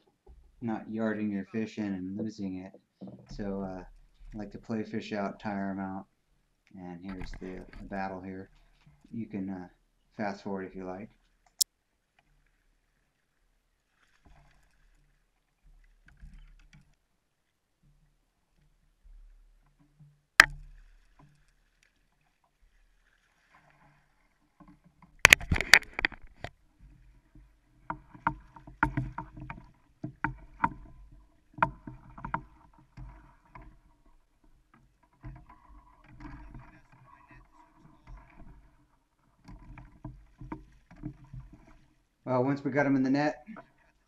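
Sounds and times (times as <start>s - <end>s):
net frame knocking hull: 7.1s - 8.2s, 27.3s - 38.8s.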